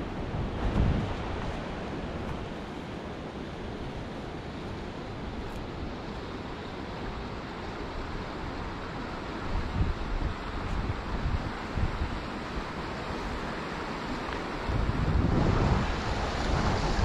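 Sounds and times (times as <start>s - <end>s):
wind buffeting microphone: 0.0s - 2.8s, 9.4s - 17.0s
wind rushing: 14.7s - 17.0s.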